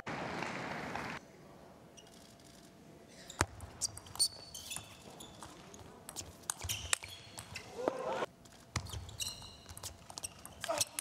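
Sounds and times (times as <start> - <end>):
crowd noise: 7.5 - 8.3.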